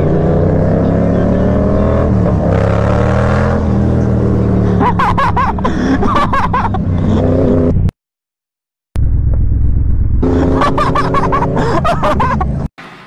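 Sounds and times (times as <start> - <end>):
motorcycle engine running: 9.0 - 11.9.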